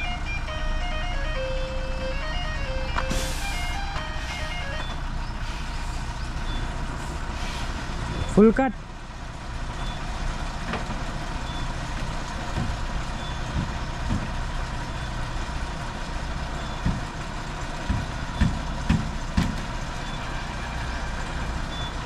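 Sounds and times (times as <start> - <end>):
lorry diesel engine running: 0.0 - 22.0
low thuds: 12.4 - 14.5.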